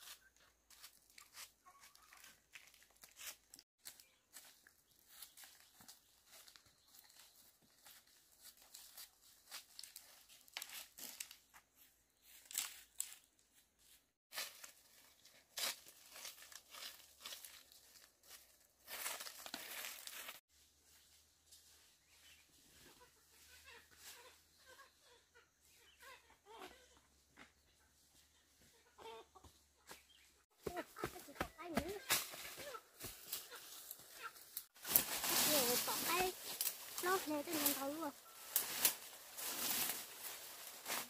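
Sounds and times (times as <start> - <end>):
broom sweeping dirt: 18.9 - 24.8, 31.2 - 41.0
rustling: 32.1 - 41.0.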